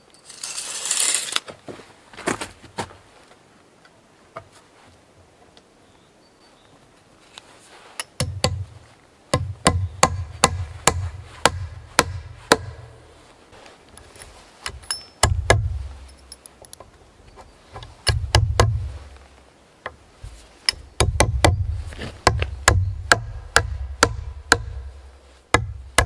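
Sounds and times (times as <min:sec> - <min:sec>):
hand tool striking wood: 0:08.0 - 0:13.0, 0:14.6 - 0:15.9, 0:17.7 - 0:18.9, 0:20.7 - 0:26.0.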